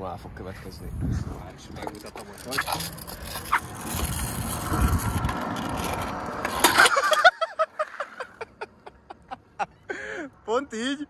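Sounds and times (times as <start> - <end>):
scooter wheels rolling on asphalt: 0.6 - 8.6
scooter crash clattering: 4.8 - 7.3.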